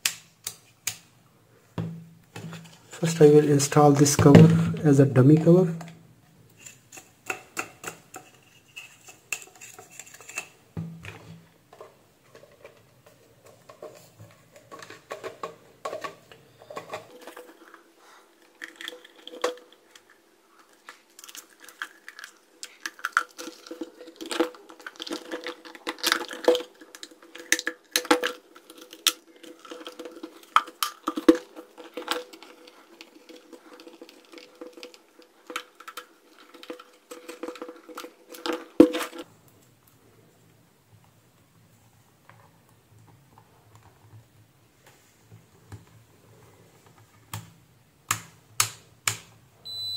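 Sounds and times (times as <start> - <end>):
faint steady hum: 0.0 - 49.9
plastic parts clicking and knocking: 6.6 - 39.3, 46.8 - 49.4.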